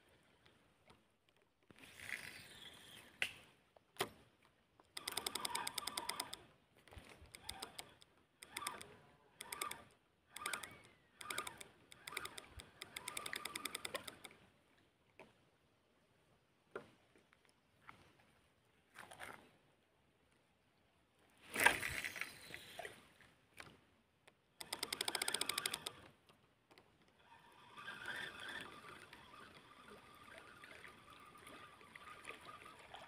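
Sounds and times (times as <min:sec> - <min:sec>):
fishing reel clicking: 0:05.0 - 0:14.4, 0:24.6 - 0:26.1, 0:27.2 - 0:31.7.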